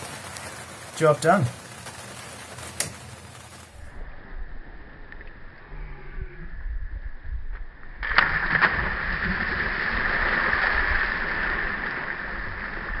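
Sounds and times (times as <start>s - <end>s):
children splashing into water: 8.0s - 13.0s.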